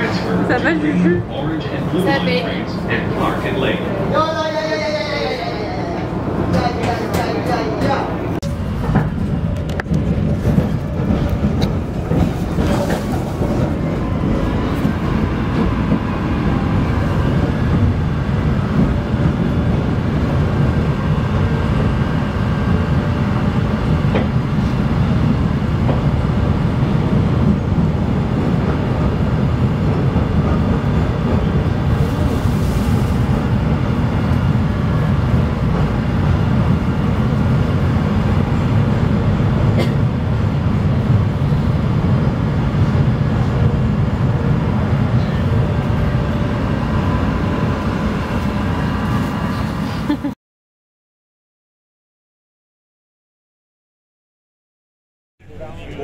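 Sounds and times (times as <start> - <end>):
train wheels rumbling on rails: 5.6 - 50.3.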